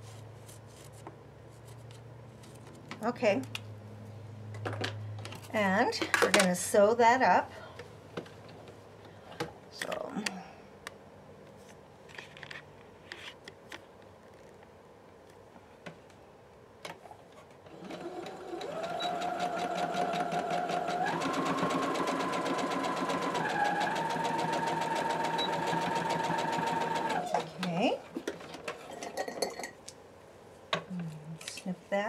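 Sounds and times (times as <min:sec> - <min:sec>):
sewing machine stitching: 0:17.7 - 0:28.9.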